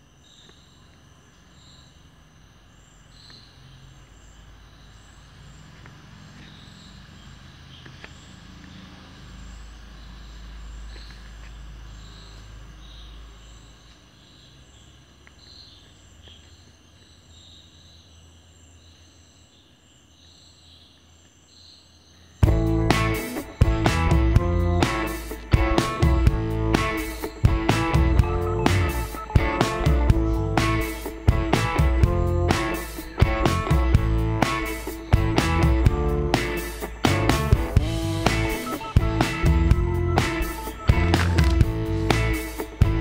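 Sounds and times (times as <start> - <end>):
high insect chirps: 0.0 - 43.0
low rumble: 22.4 - 29.1.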